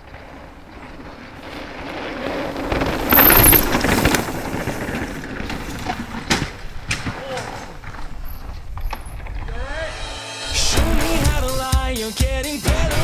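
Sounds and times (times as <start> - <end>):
bike tyres on dirt: 0.0 - 10.0, 10.6 - 11.9.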